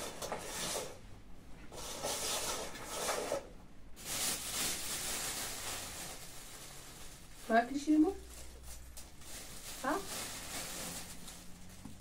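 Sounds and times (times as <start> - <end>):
plastic bag crinkling: 1.8 - 12.0.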